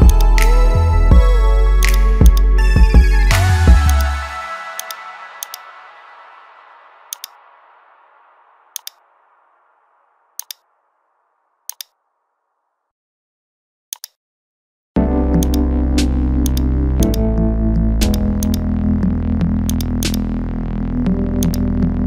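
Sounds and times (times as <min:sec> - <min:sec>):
electronic background music: 0:00.0 - 0:09.7, 0:15.0 - 0:22.0
loud synthesizer music: 0:00.0 - 0:09.7, 0:15.0 - 0:22.0
computer mouse clicking: 0:07.1 - 0:07.4, 0:08.8 - 0:09.0, 0:10.4 - 0:10.6, 0:11.7 - 0:12.0, 0:13.9 - 0:14.2, 0:16.5 - 0:17.2, 0:18.0 - 0:18.6, 0:19.7 - 0:20.2, 0:21.4 - 0:21.6.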